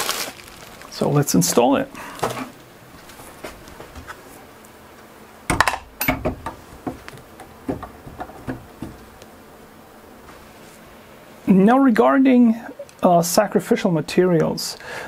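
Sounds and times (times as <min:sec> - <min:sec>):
metallic clinks and knocks: 0:05.5 - 0:09.0.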